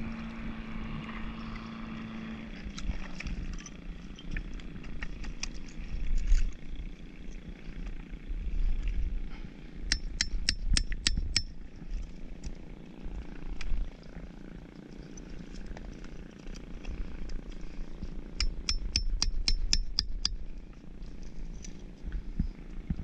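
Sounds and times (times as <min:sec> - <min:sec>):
hammer tapping oyster shells: 0:09.9 - 0:11.5, 0:18.4 - 0:20.4.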